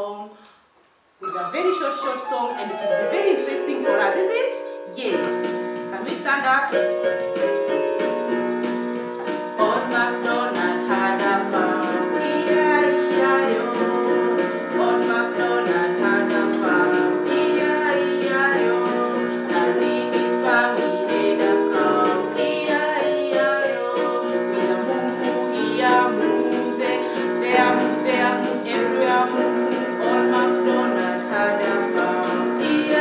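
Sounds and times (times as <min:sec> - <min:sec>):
woman singing children's song: 0:00.0 - 0:00.4, 0:01.2 - 0:07.0, 0:09.2 - 0:33.0
plucked string accompaniment: 0:01.2 - 0:14.0.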